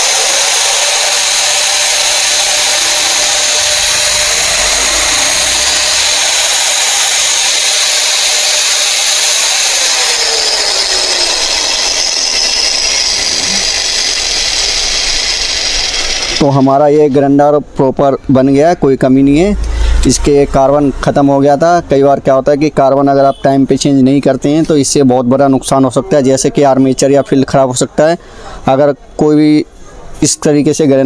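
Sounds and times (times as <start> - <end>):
angle grinder motor whining: 0.0 - 17.2.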